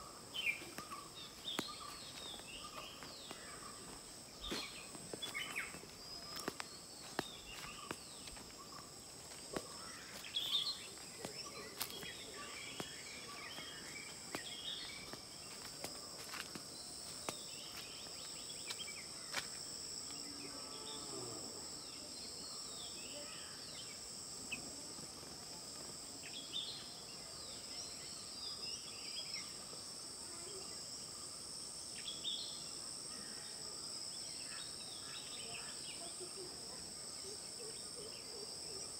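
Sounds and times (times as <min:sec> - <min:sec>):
insects droning: 0:00.0 - 0:38.9.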